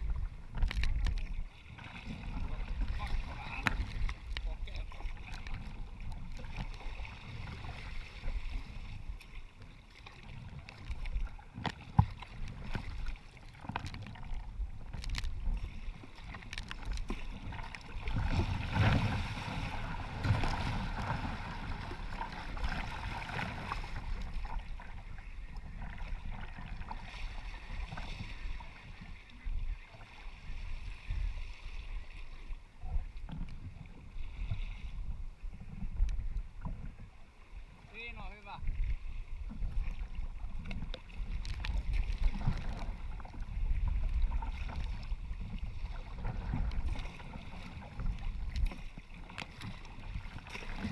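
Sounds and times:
waves sloshing against kayak hull: 0:00.0 - 0:50.9.

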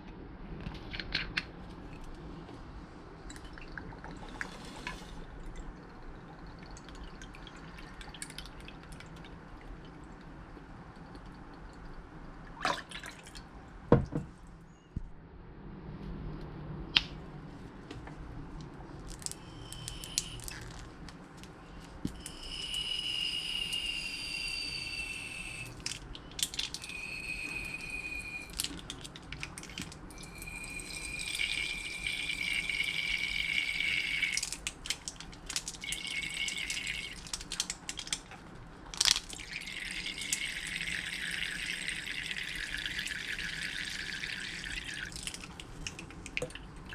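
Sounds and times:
liquid trickling into plastic cup: 0:03.3 - 0:10.3, 0:25.6 - 0:38.3, 0:39.0 - 0:46.9.

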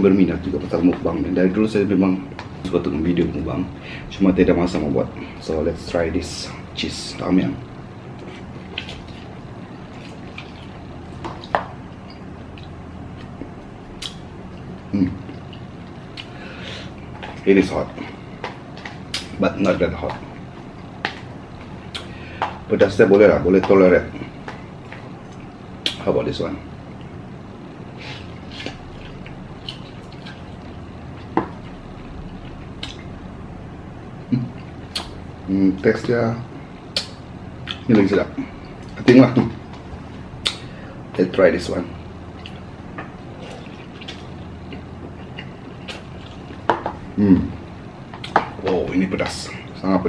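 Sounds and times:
person slurping and chewing noodles: 0:43.2 - 0:46.6.

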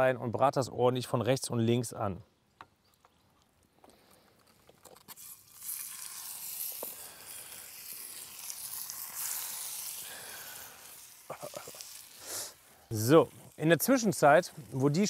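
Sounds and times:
meat searing in hot oil: 0:05.0 - 0:15.0.

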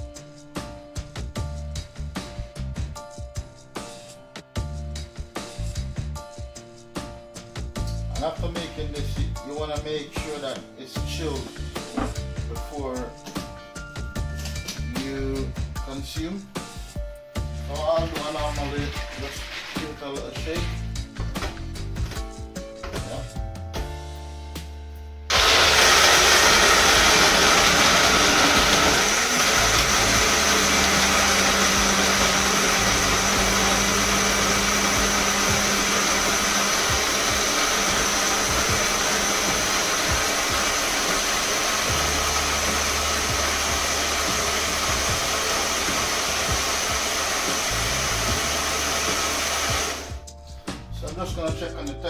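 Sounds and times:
blender running: 0:25.3 - 0:50.2.

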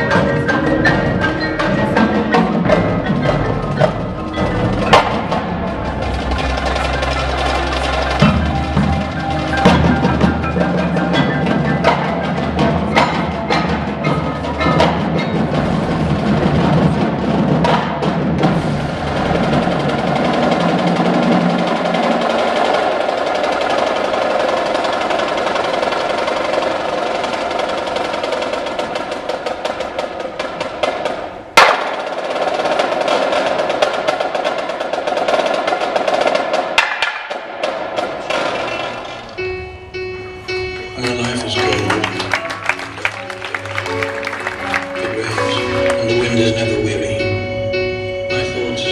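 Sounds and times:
low drum: 0:00.0 - 0:34.6
snare and tenor drums: 0:00.0 - 0:39.4, 0:40.9 - 0:47.2
mallet keyboards: 0:00.0 - 0:48.9.

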